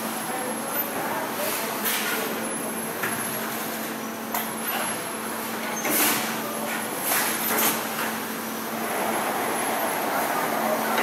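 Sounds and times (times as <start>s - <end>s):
factory machinery humming: 6.2s - 11.0s.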